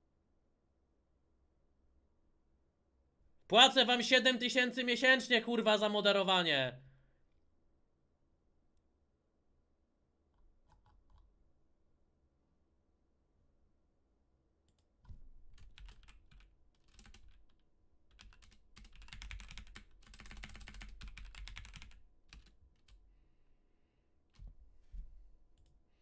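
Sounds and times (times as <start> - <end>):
typing on keyboard: 15.5 - 23.0.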